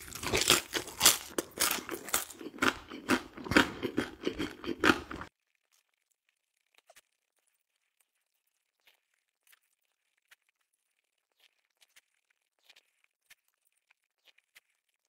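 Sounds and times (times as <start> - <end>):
crunchy chewing: 0.0 - 15.0.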